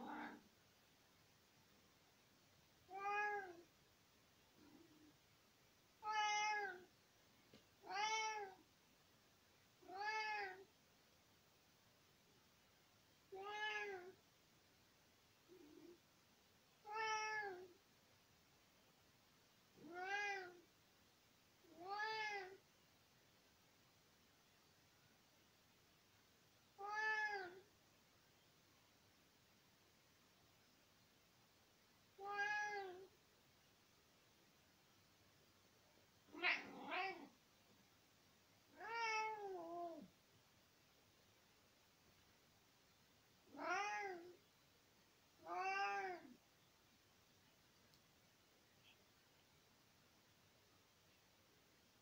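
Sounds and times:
cat meowing: 0:00.0 - 0:00.4, 0:02.9 - 0:03.6, 0:06.0 - 0:06.9, 0:07.8 - 0:08.6, 0:09.8 - 0:10.6, 0:13.4 - 0:14.2, 0:16.9 - 0:17.7, 0:19.8 - 0:20.6, 0:21.7 - 0:22.6, 0:26.8 - 0:27.6, 0:32.2 - 0:33.1, 0:36.3 - 0:37.3, 0:38.7 - 0:40.1, 0:43.5 - 0:44.4, 0:45.4 - 0:46.4.

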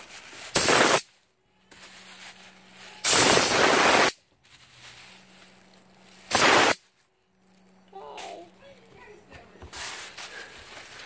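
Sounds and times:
compressed air hissing: 0:00.5 - 0:01.1, 0:03.0 - 0:04.2, 0:06.2 - 0:06.8.

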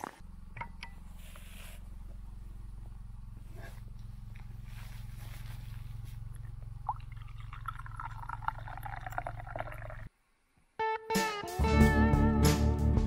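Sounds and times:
low hum: 0:00.0 - 0:10.1
coffee pouring into a cup: 0:06.3 - 0:10.1.

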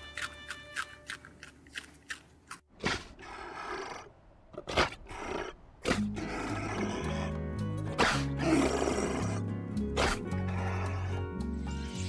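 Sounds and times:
background music with low notes: 0:05.9 - 0:12.0.

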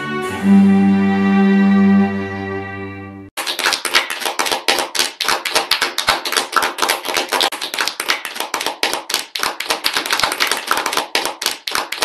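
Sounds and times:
crowd applauding: 0:03.4 - 0:12.0.

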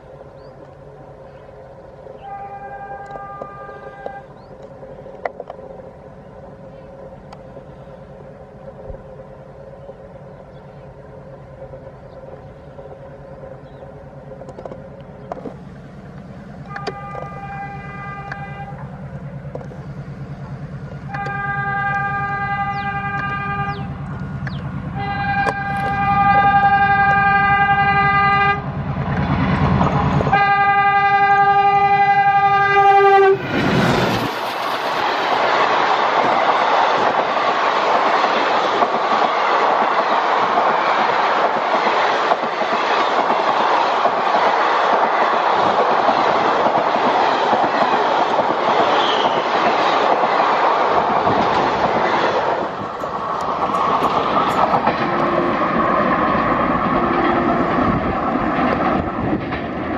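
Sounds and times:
diesel locomotive engine rumble: 0:00.0 - 0:59.9
multi-tone train horn: 0:02.2 - 0:04.4, 0:16.6 - 0:18.9, 0:21.0 - 0:23.9, 0:25.0 - 0:28.7, 0:30.2 - 0:33.6, 0:48.9 - 0:49.6
train rushing and clattering past: 0:03.2 - 0:59.9.

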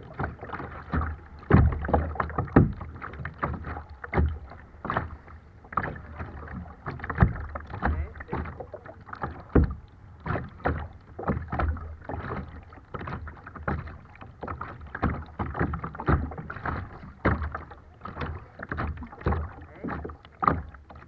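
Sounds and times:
water splashing against kayak hull: 0:00.0 - 0:21.0.

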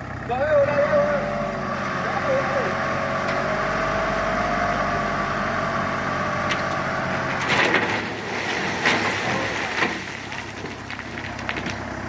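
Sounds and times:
truck engine running: 0:00.0 - 0:12.0
rocks clattering: 0:06.5 - 0:12.0.

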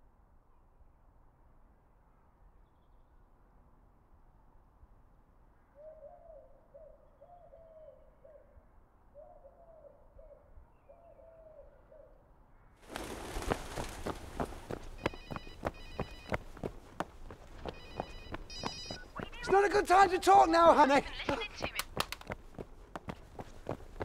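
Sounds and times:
bird hooting softly: 0:05.7 - 0:12.3
phone ringing: 0:14.9 - 0:16.7, 0:17.6 - 0:22.1.

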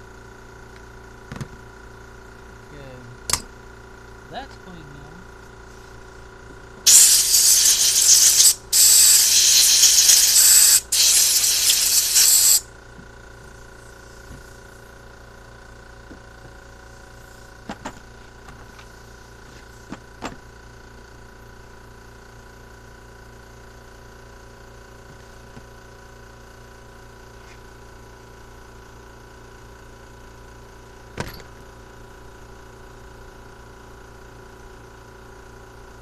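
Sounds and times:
compressed air blasts: 0:06.9 - 0:12.7.

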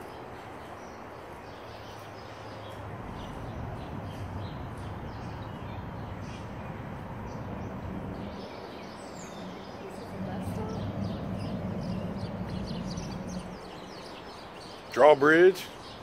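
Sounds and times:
river rumble: 0:02.9 - 0:14.6.

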